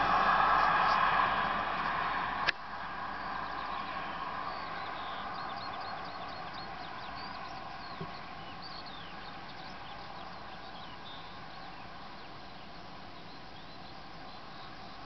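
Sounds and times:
small birds chirping: 3.1 - 15.0.

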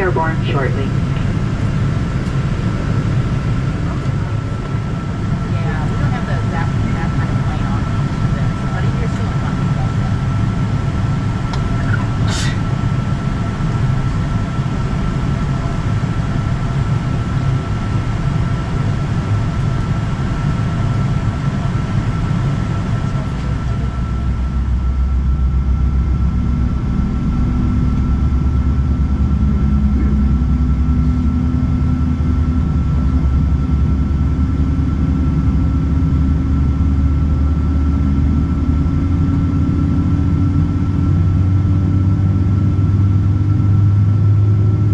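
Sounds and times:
faint whine: 0.0 - 44.9
jet engine rumble in cabin: 0.0 - 44.9
low hum rising in pitch: 23.1 - 44.9.

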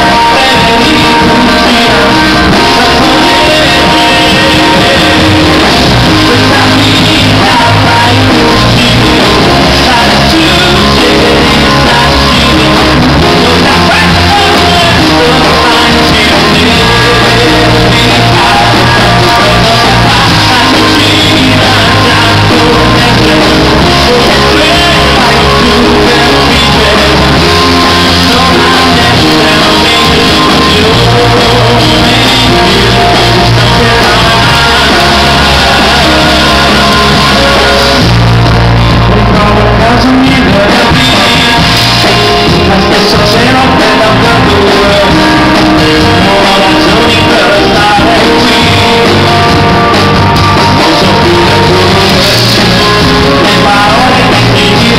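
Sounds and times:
live rock band: 0.0 - 54.9
man singing into microphone: 0.0 - 54.9.

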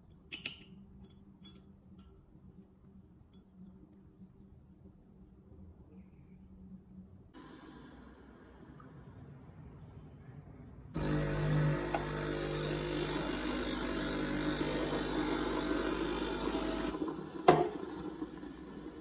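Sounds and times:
espresso machine humming: 7.4 - 8.9, 11.0 - 19.0.

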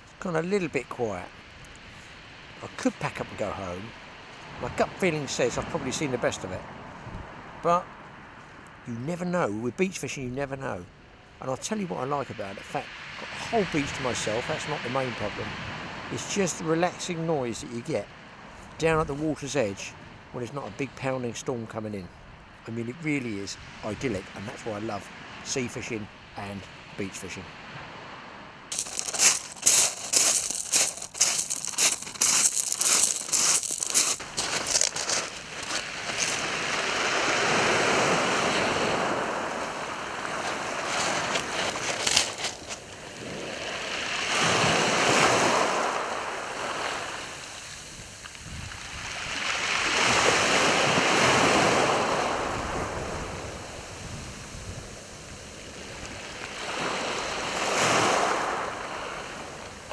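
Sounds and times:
clattering shingle stones: 28.7 - 36.4, 41.0 - 42.8
small waves breaking on shingle: 28.7 - 39.3, 40.0 - 43.8.

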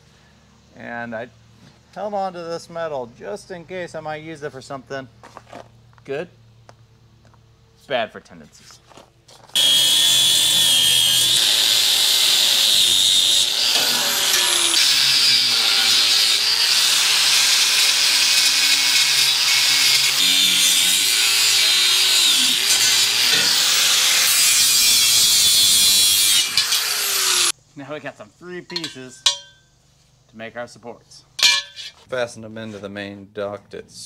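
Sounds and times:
angle grinder cutting steel: 9.6 - 27.6, 28.7 - 29.6.

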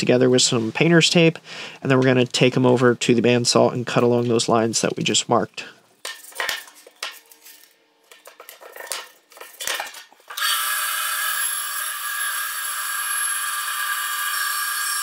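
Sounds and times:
hands rustling tape and wood: 6.0 - 10.4
bandsaw cutting wood: 10.4 - 15.0.

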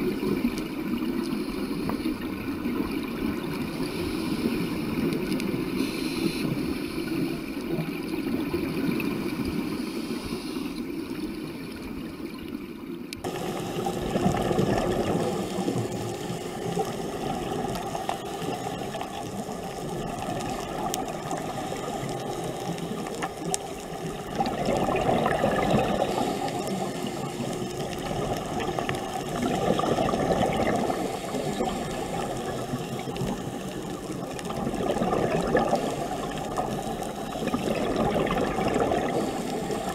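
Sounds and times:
muffled underwater water noise: 0.0 - 39.9
water rushing surges: 13.2 - 39.9.

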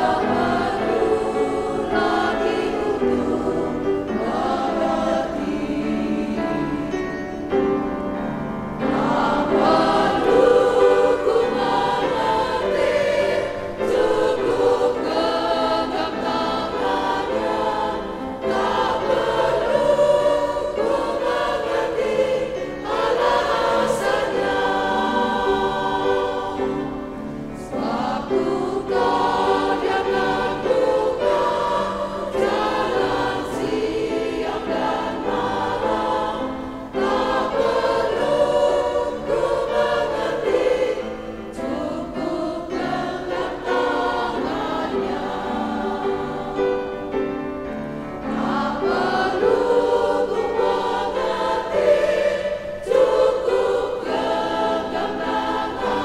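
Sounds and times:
women's choir singing a hymn: 0.0 - 56.0.

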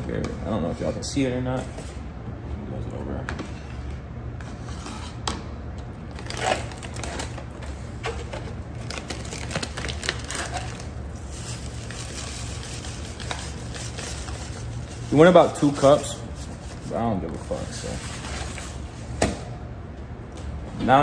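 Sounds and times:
plastic bag crinkling: 6.1 - 16.2.

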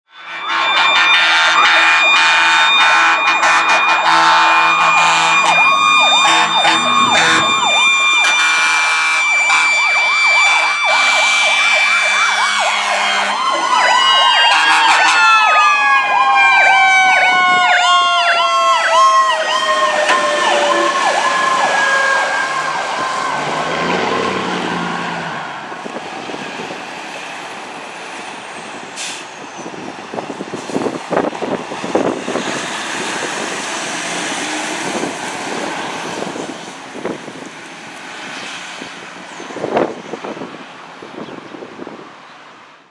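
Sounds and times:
road noise: 0.0 - 42.9
electronic siren yelping: 0.1 - 23.9
mechanical siren howling: 0.2 - 25.4
truck engine: 0.3 - 41.2.

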